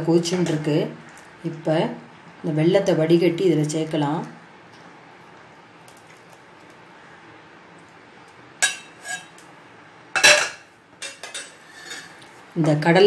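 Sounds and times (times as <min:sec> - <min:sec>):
faint steady hiss: 0:00.0 - 0:13.0
steel utensils clinking: 0:08.6 - 0:09.4, 0:10.2 - 0:12.2.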